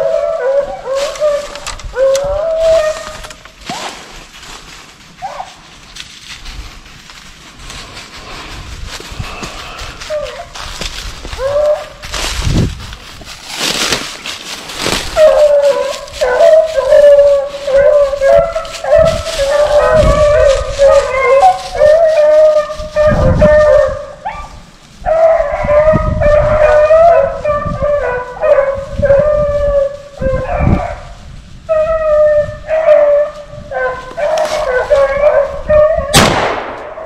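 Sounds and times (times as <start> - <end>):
dogs baying in chorus: 0.0 - 3.4, 14.8 - 36.2
rustling: 0.0 - 36.8.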